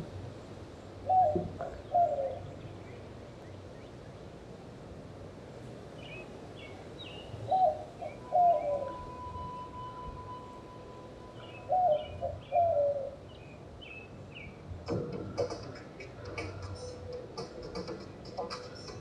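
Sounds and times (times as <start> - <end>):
small birds chirping: 5.9 - 9.2, 10.7 - 19.0
lower two-note bird call: 8.0 - 12.8
steady tone: 8.2 - 12.3.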